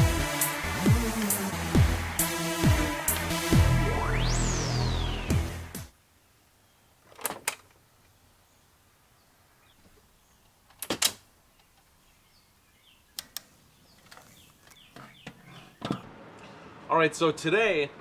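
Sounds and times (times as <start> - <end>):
sharp clicks: 13.2 - 13.5.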